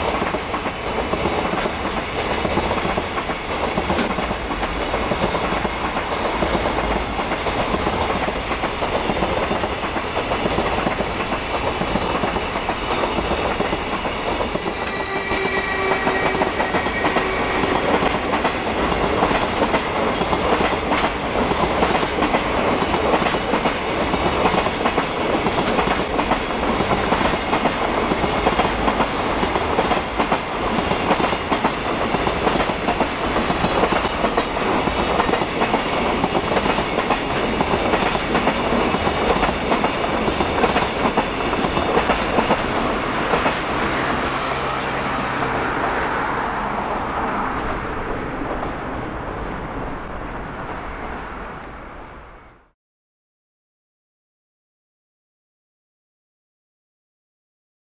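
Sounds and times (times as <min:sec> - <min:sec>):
train wheels clacking: 0:00.0 - 0:44.6.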